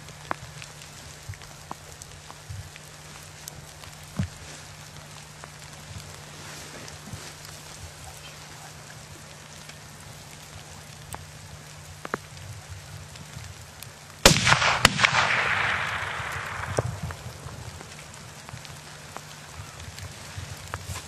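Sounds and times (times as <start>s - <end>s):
rifle shots cracking: 14.2s - 17.8s
gunshot report rolling away: 14.3s - 17.2s.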